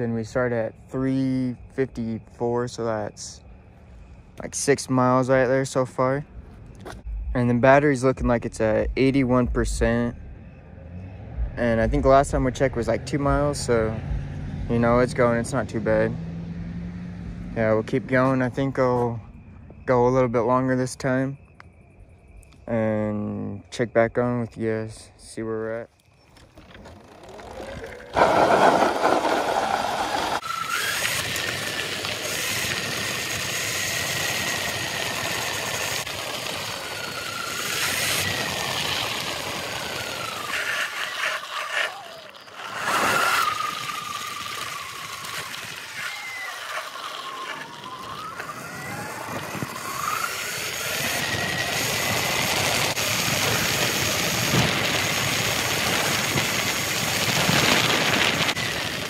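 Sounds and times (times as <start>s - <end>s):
electric motor whine: 26.3s - 59.0s
wind rush on microphone: 47.5s - 59.0s.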